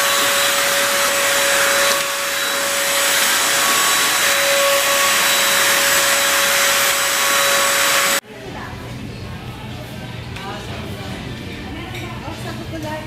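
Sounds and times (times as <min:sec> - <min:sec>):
vacuum cleaner suction with whine: 0:00.0 - 0:08.2.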